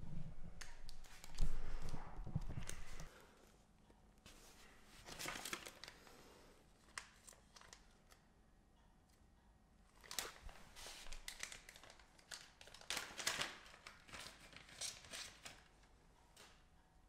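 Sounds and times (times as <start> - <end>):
plastic bag crinkling: 10.0 - 15.7.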